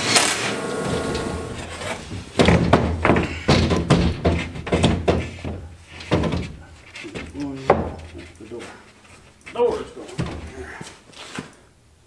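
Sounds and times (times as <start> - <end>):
hollow thunks of panel on frame: 1.0 - 8.2.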